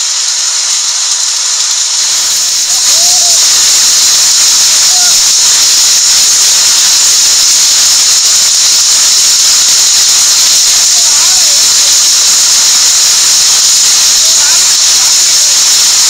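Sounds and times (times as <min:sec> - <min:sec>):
hail and rain pelting: 0:00.0 - 0:16.0.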